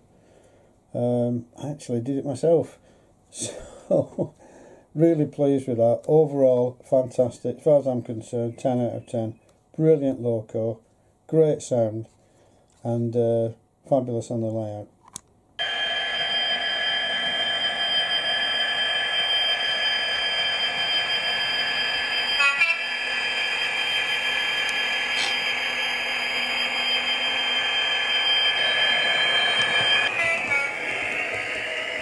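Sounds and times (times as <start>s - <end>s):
high whine: 15.6s - 32.0s
model train diesel engine sound: 15.6s - 32.0s
hiss: 24.6s - 25.5s.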